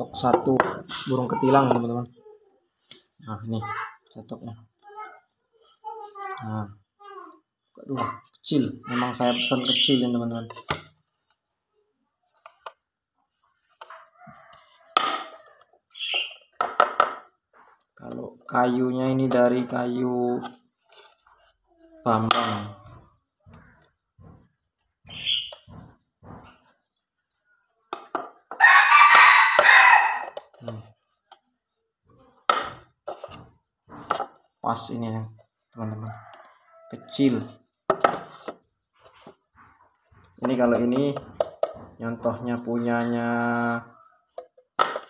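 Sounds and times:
chicken calling: 28.6s - 30.4s
rooster crowing: 28.6s - 30.4s.

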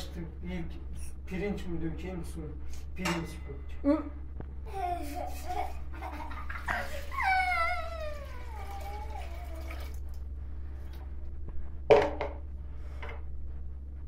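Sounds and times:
water pouring into metal pot: 6.6s - 10.2s.

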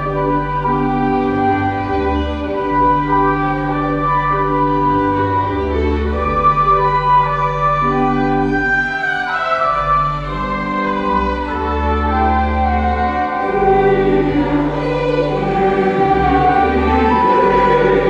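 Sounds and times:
pipe organ chords: 0.0s - 18.0s
choir singing: 12.4s - 18.0s.

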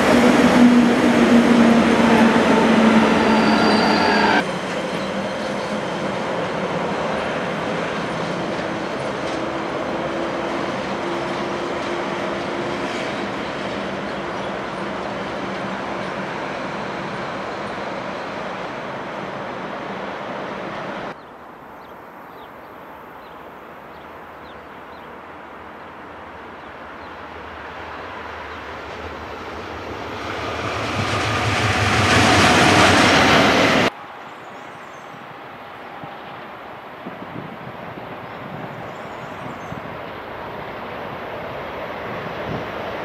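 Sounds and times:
train rumbling on tracks: 0.0s - 21.2s, 23.8s - 43.0s
wheel and rail noise: 0.0s - 22.6s.

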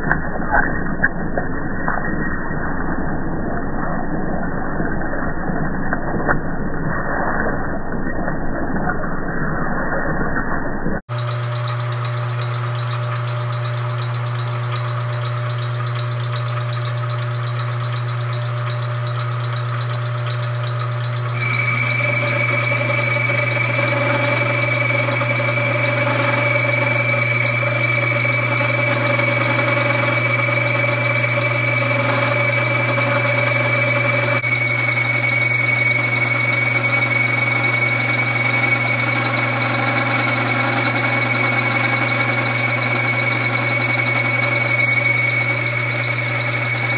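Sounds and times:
high whine: 0.0s - 11.1s, 21.3s - 46.9s
milling machine hum: 11.1s - 46.9s.

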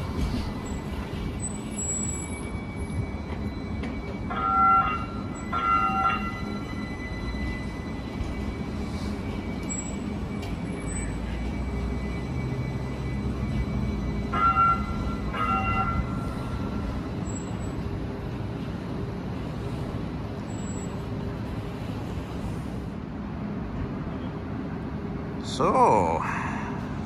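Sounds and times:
street noise: 0.0s - 27.0s
streetcar humming: 0.0s - 27.0s.

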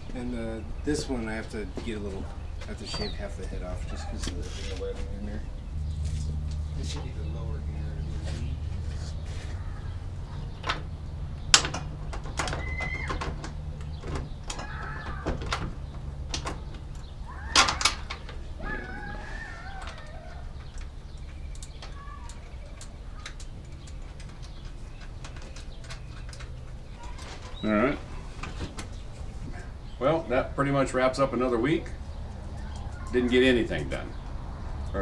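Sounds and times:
metal clicks and knocks: 10.5s - 18.9s, 19.6s - 27.6s.

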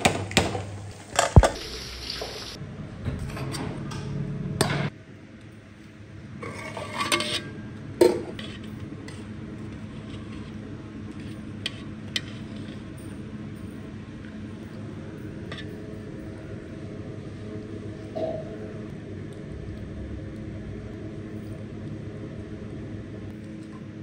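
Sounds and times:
ladle scraping metal pot: 6.4s - 7.6s.

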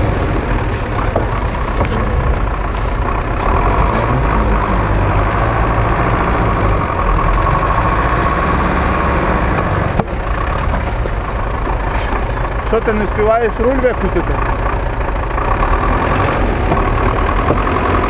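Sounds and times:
truck engine running under load: 0.0s - 18.0s
high whine: 11.8s - 12.8s.

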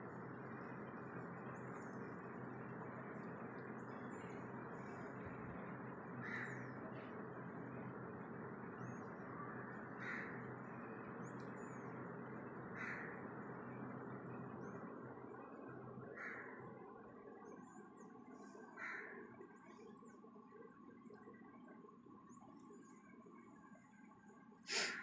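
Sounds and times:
crow cawing: 6.2s - 6.8s, 9.6s - 10.5s, 12.8s - 13.2s, 16.1s - 16.6s, 18.8s - 19.3s.

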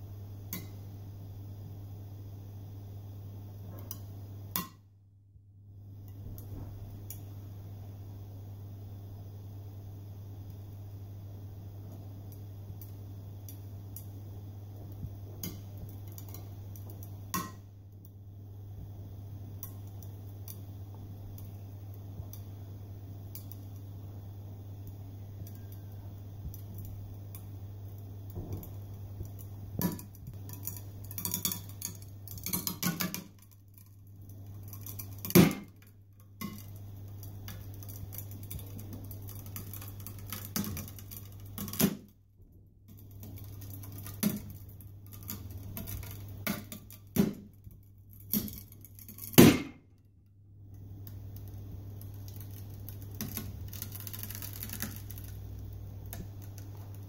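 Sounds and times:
webbing cracking and snapping: 51.0s - 57.0s.

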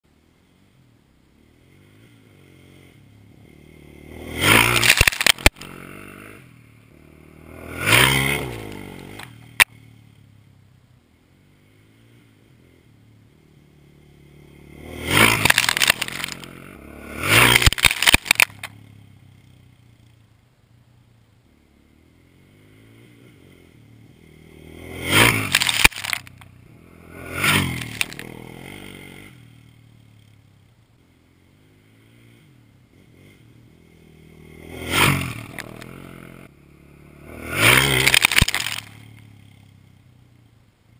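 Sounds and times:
quad engine revving hard: 3.4s - 9.4s, 14.3s - 18.8s, 24.3s - 29.4s, 34.3s - 36.3s, 36.9s - 39.2s.

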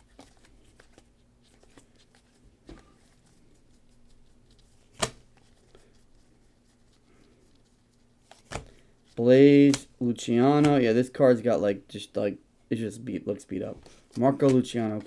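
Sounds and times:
trading cards sliding and flicking: 4.7s - 5.5s
card snap: 5.0s - 5.2s.

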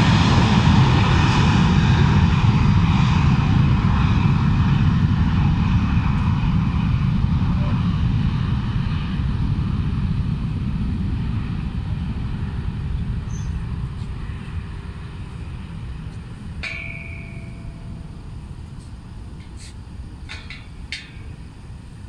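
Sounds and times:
jet engines low rumble: 0.0s - 22.0s
metallic ping: 16.6s - 21.6s.

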